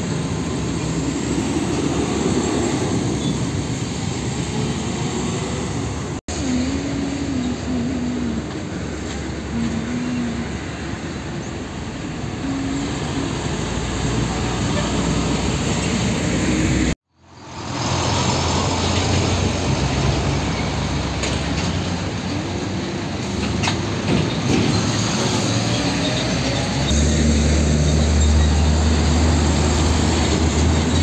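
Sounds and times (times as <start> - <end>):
diesel trucks passing: 0.0 - 31.0
tyre and road noise: 0.0 - 31.0.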